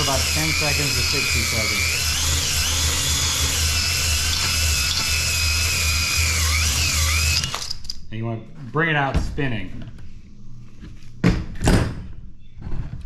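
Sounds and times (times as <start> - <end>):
drill motor whine: 0.0 - 7.8.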